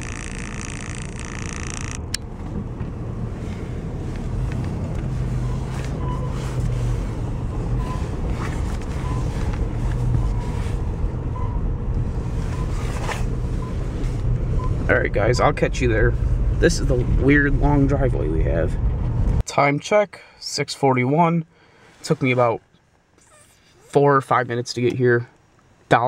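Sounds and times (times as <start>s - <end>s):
car engine rumbling: 0.0s - 19.5s.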